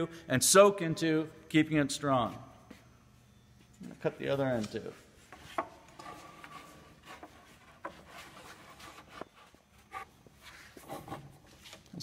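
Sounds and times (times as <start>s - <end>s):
wood knocks and scrapes: 5.3s - 10.1s.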